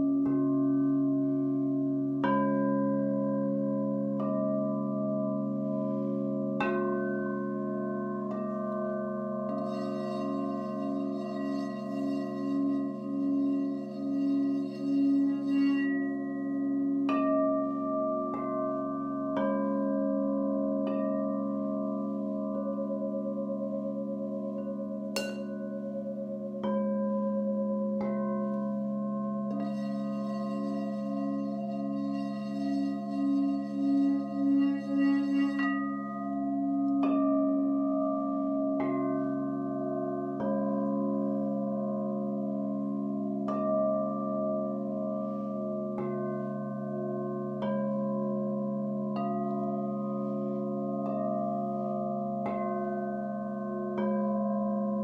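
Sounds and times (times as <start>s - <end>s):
singing bowl rim tone: 0.0s - 55.0s
singing bowl rim rubbed: 9.6s - 16.4s, 29.5s - 36.2s
singing bowl strikes: 9.6s - 16.4s, 25.2s - 25.8s, 29.5s - 36.1s.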